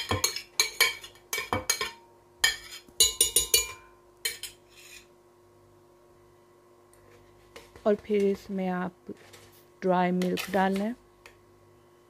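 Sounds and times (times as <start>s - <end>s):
bowl clinking against glass jar: 0.0s - 4.6s.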